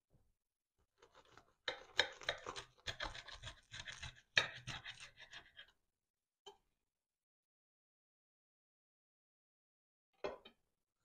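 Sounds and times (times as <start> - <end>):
knife sawing through crisp crust: 1.1 - 5.7.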